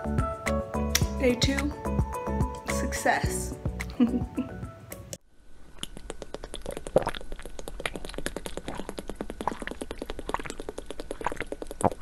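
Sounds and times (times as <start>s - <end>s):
water bubbling: 5.8s - 12.0s.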